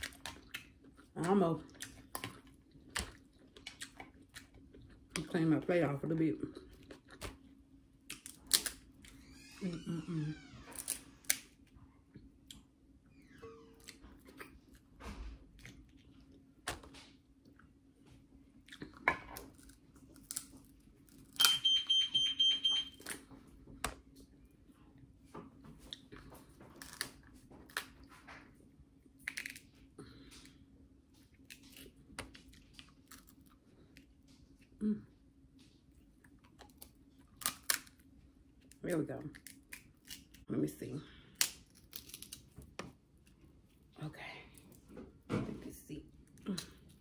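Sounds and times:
chewing: 0.0s - 5.4s, 6.6s - 8.7s, 18.6s - 21.4s
crab shells cracking: 8.1s - 8.8s, 19.4s - 21.6s, 29.2s - 29.7s, 36.6s - 38.8s, 39.4s - 40.5s, 41.4s - 42.9s.

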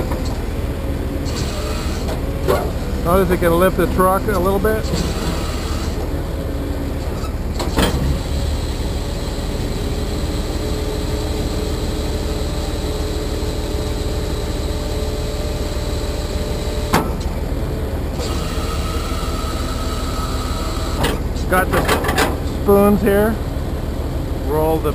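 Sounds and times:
hydraulic whine: 0.0s - 23.7s
diesel engine running: 0.0s - 24.9s
hydraulic lift clunk: 4.5s - 6.2s, 7.0s - 8.3s, 16.7s - 17.4s, 18.1s - 22.6s.

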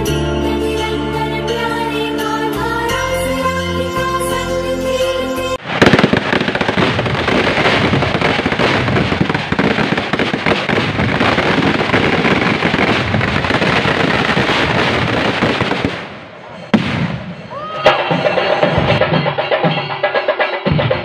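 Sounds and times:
firecrackers banging: 5.6s - 19.1s.

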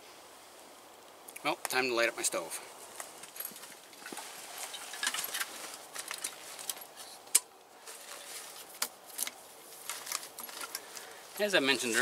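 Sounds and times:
rummaging through nylon backpack: 3.2s - 7.2s, 7.8s - 12.0s.

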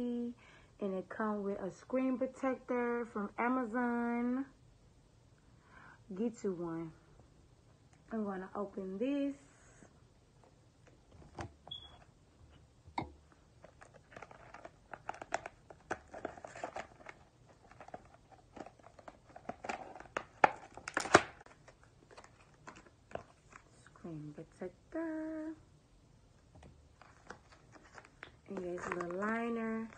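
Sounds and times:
packaging crinkling and tearing: 13.6s - 23.7s, 27.0s - 29.9s.

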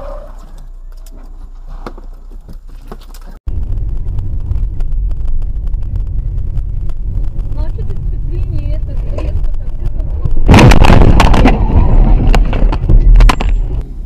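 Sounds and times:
car road and engine noise: 0.0s - 14.0s
heavy rumble of car driving: 3.2s - 14.0s.

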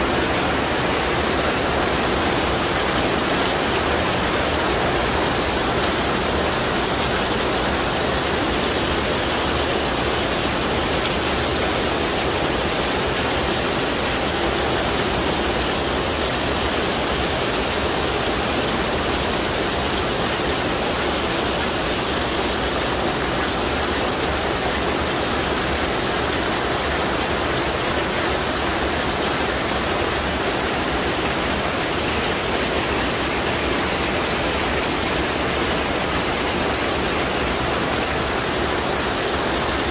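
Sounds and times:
heavy rain downpour: 0.0s - 39.9s.

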